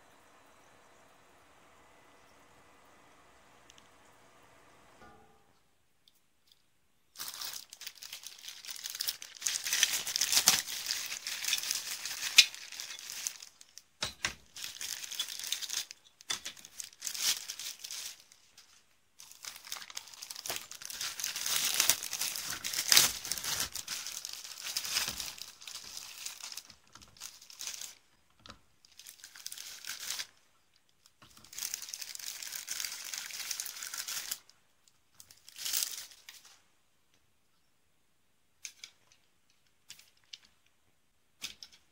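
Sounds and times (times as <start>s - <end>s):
plastic bags crinkling: 6.5s - 34.5s, 35.2s - 36.6s.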